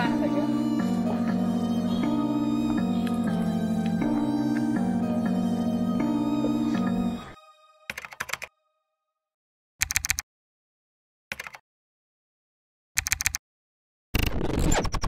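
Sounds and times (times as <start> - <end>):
calm music: 0.0 - 9.2
keyboard typing clicks: 7.9 - 8.5, 9.8 - 10.2, 11.3 - 11.6, 13.0 - 13.4.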